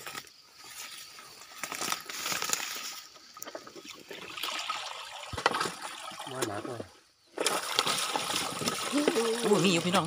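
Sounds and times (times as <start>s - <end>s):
wet weeds rustling and crackling: 0.0s - 4.7s
small water splashes: 2.2s - 10.0s.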